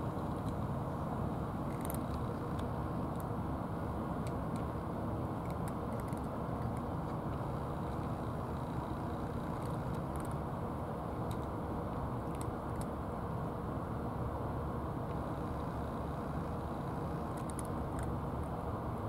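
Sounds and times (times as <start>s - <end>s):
low outdoor rumble: 0.0s - 19.0s
cat crunching dry food: 1.7s - 2.6s, 5.4s - 8.7s, 9.4s - 10.4s, 12.2s - 12.9s, 17.2s - 18.1s.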